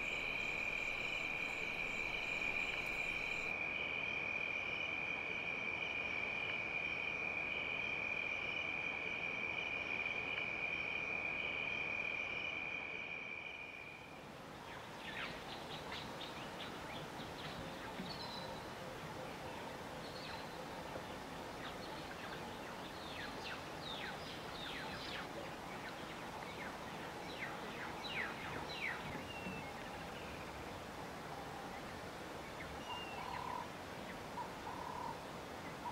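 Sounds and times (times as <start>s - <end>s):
bird chirps: 0.0s - 3.5s
soft background hiss: 0.0s - 4.1s, 13.4s - 35.9s
night insects trilling: 0.0s - 14.2s.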